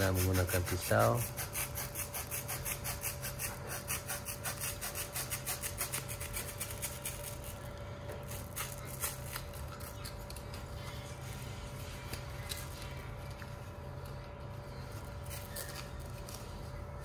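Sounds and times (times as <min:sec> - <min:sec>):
knife blade sawing through foam: 0:00.0 - 0:07.0.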